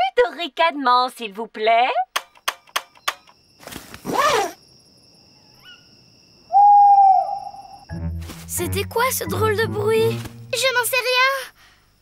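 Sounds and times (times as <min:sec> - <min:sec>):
cartoon owl hooting: 0:06.5 - 0:07.8.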